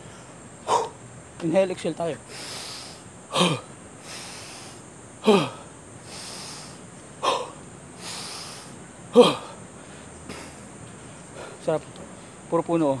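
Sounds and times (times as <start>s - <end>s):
man inhaling with hiss: 2.2s - 12.5s
man exhaling forcefully: 2.3s - 9.6s.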